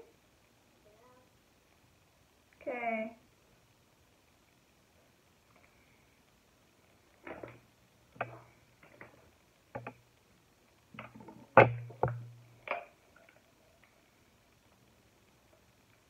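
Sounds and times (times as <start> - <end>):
objects knocking on tabletop: 11.0 - 12.9.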